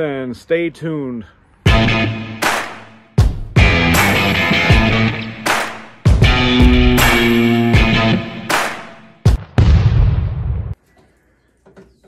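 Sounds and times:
rock guitar chord: 1.7 - 2.4, 3.6 - 5.5, 6.1 - 8.6
loud percussive hits: 1.7 - 10.8.

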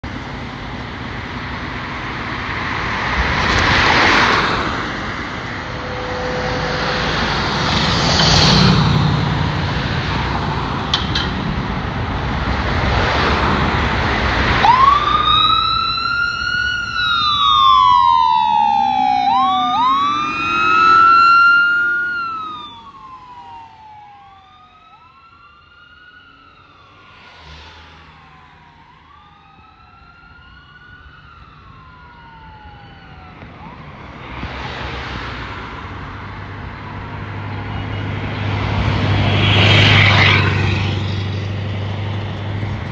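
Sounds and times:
low rising growl: 3.4 - 10.6, 13.0 - 24.2
diesel engine running loud: 4.6 - 23.6
electronic siren wailing: 5.2 - 8.7, 14.6 - 27.1, 27.7 - 34.4.

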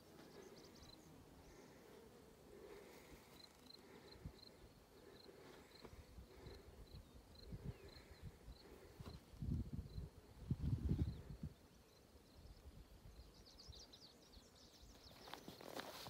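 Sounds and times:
faint insect chirping: 0.0 - 16.0
wind buffeting microphone: 7.4 - 11.6.

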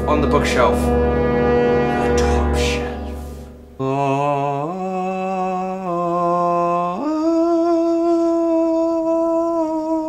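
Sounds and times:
person singing a held note: 1.9 - 5.0.

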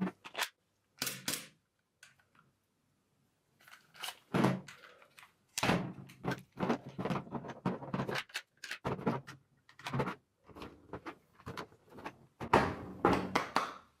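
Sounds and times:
plastic and metal clicks and rattles: 3.6 - 11.7.

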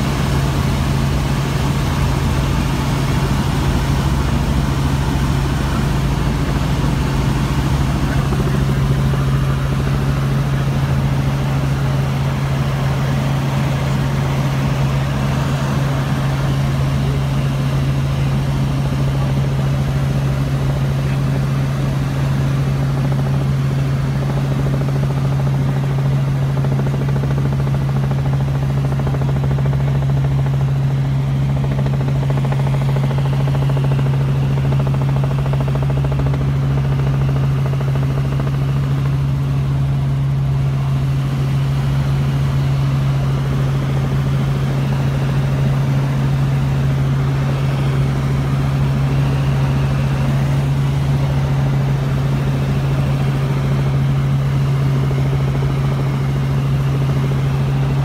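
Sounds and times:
helicopter engine and rotor drone: 0.0 - 58.0.

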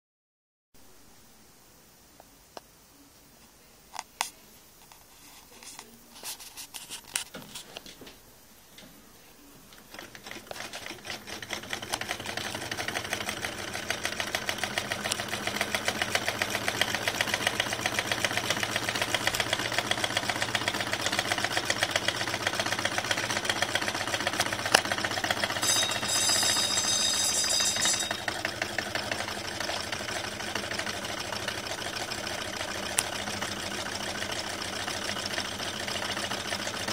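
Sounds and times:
scattered clicks: 9.7 - 12.8, 18.5 - 20.5.

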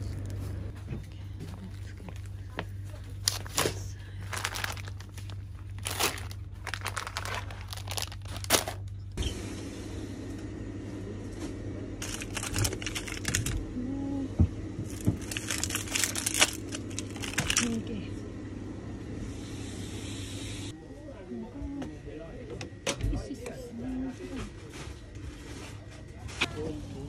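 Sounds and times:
low hum: 0.0 - 21.8
plastic packaging crinkling: 3.1 - 9.2, 12.0 - 13.7, 14.9 - 17.9.

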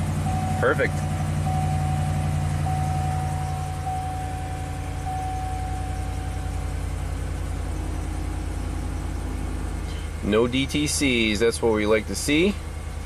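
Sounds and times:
engine idling: 0.0 - 13.0
thin steady high tone: 0.0 - 13.0.

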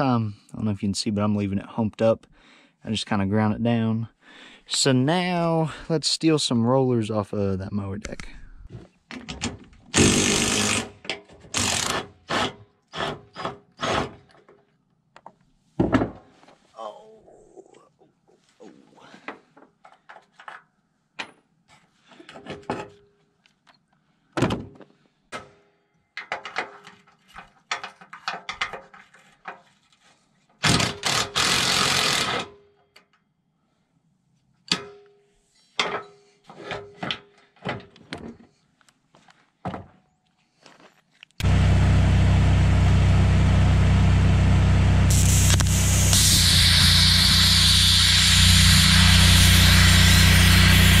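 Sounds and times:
cordless drill spinning bolts: 9.9 - 12.5, 30.6 - 32.4, 45.1 - 51.0
plasma cutter hissing: 45.1 - 51.0.

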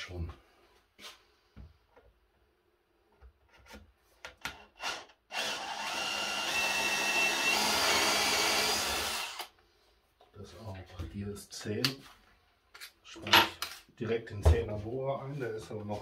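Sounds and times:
drill boring through wood: 4.8 - 9.5.

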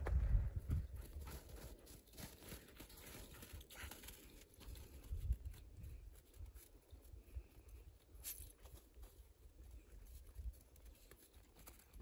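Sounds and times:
footsteps crunching in snow: 0.0 - 6.8.

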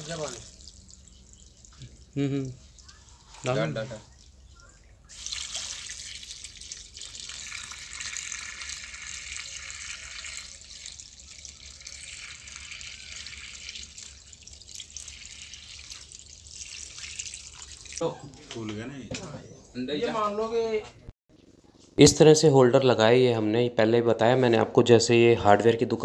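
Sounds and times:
liquid pouring onto straw: 5.1 - 18.0.

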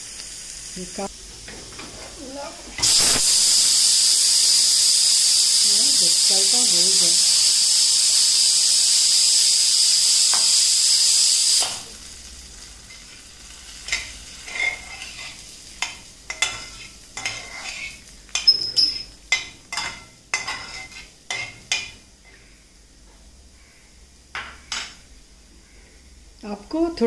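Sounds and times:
hot oil sizzling: 0.0 - 27.0
steel spatula scraping metal pan: 13.9 - 15.4, 16.3 - 18.5, 19.7 - 21.9.

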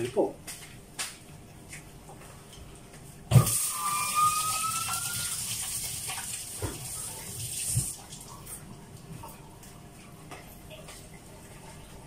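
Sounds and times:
liquid pouring into container: 3.4 - 8.7.

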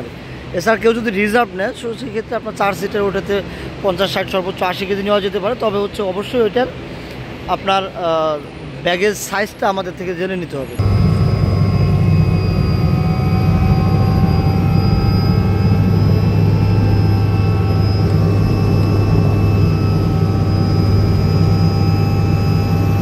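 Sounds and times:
helicopter cabin drone: 0.0 - 8.7, 10.6 - 23.0
high whining tones: 10.8 - 23.0.

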